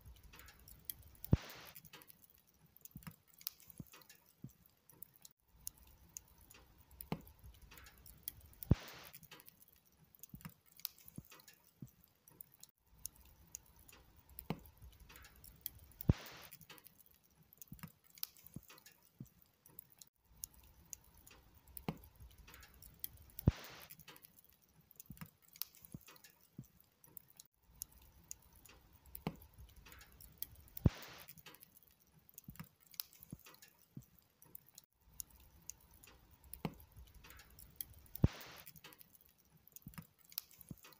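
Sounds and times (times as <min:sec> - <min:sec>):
log fire crackling: 0:00.0 - 0:40.9
loud fire pops: 0:01.2 - 0:01.9, 0:08.6 - 0:09.4, 0:16.0 - 0:16.6, 0:23.3 - 0:24.0, 0:30.8 - 0:31.6, 0:38.1 - 0:38.9.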